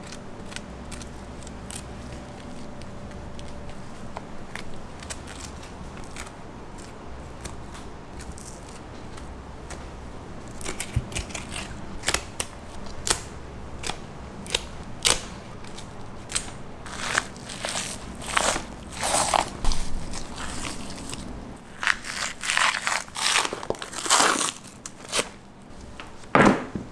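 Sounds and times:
low steady hum: 0:00.0 - 0:26.9.

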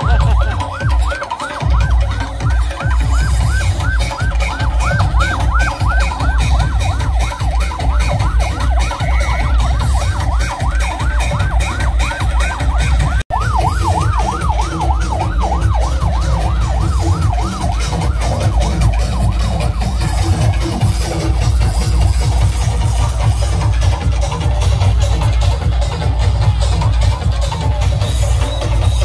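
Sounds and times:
fast yelping siren: 0:00.0 - 0:24.4
electronic dance music: 0:00.0 - 0:29.0.

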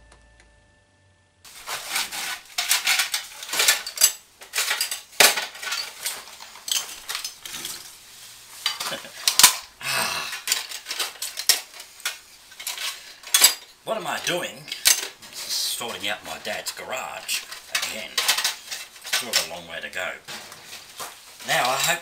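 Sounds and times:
metal hardware clinking: 0:02.6 - 0:07.9, 0:10.3 - 0:15.2, 0:17.3 - 0:19.6.

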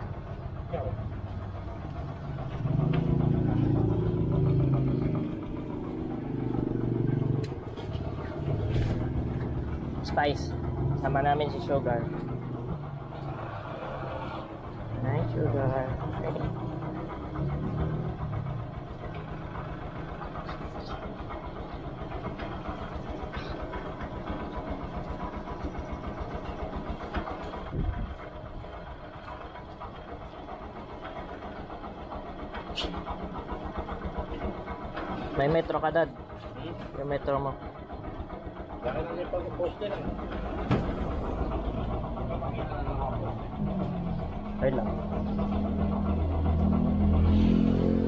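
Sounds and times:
motorcycle engine idling: 0:00.0 - 0:47.8.

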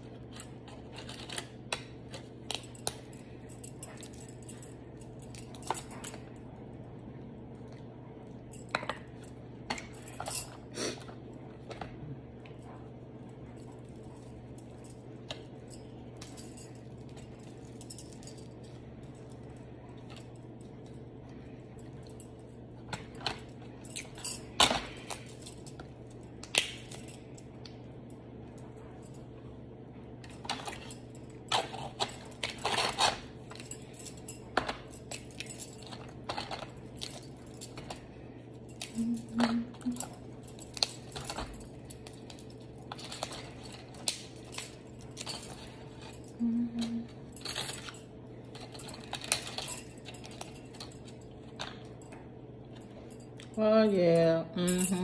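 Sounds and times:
faint steady hum: 0:00.0 - 0:55.0
metal bracelets jangling: 0:02.2 - 0:06.3, 0:23.2 - 0:27.4, 0:30.2 - 0:52.0, 0:52.8 - 0:55.0
crab legs cracking: 0:26.4 - 0:27.0
aluminium foil crinkling: 0:30.4 - 0:34.0.

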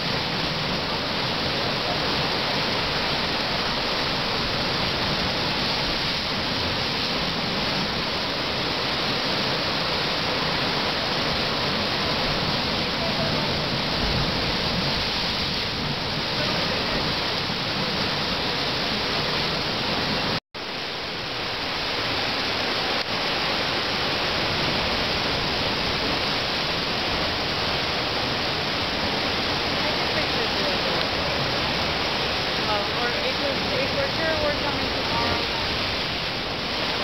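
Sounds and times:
sea water surging and churning: 0:00.0 - 0:37.0.

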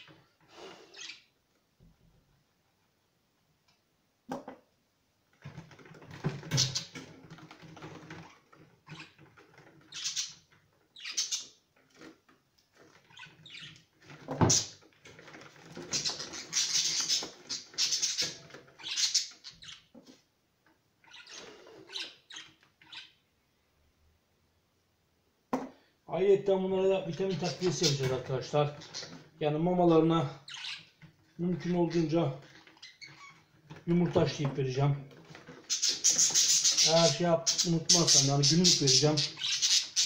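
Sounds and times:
budgerigars squawking and chattering: 0:09.9 - 0:10.4, 0:11.0 - 0:11.5, 0:15.8 - 0:19.8, 0:21.1 - 0:23.1, 0:30.5 - 0:30.9, 0:35.6 - 0:40.0.

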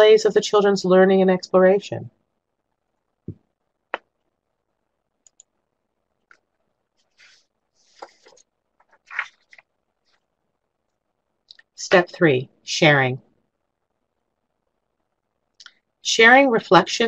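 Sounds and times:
mouth clicks and lip smacks: 0:15.6 - 0:15.8.

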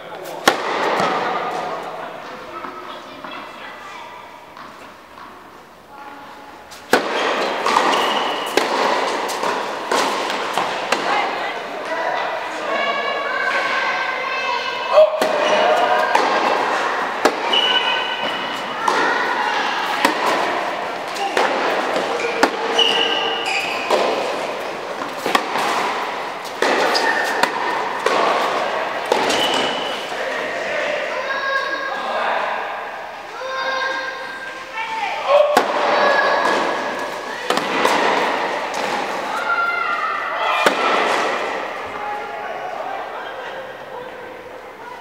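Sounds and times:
tennis racket hitting ball: 0:00.3 - 0:02.8, 0:06.7 - 0:11.9, 0:15.0 - 0:30.1, 0:35.5 - 0:39.7, 0:40.6 - 0:41.8
shoes squeaking on court: 0:06.7 - 0:11.3, 0:15.4 - 0:30.2.

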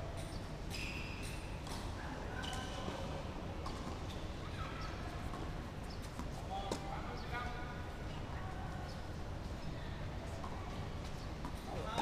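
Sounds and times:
shoe squeaks: 0:00.7 - 0:01.6.

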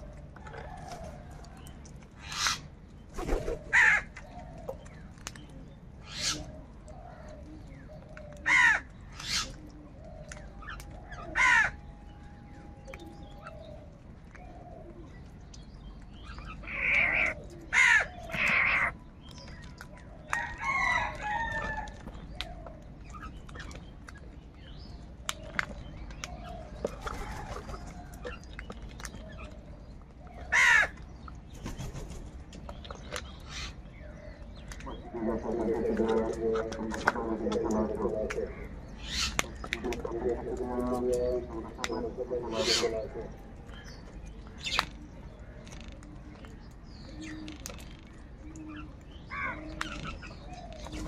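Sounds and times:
crows cawing: 0:03.7 - 0:04.2, 0:08.4 - 0:09.5, 0:11.2 - 0:11.8, 0:16.6 - 0:19.0, 0:30.5 - 0:31.0.

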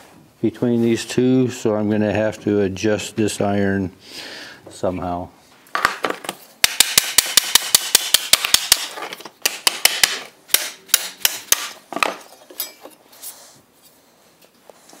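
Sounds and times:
hammer striking metal punch: 0:06.6 - 0:11.8.

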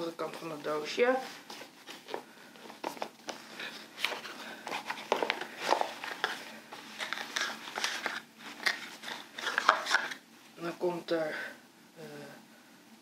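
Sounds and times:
cardboard and paper rustling: 0:00.4 - 0:10.2.

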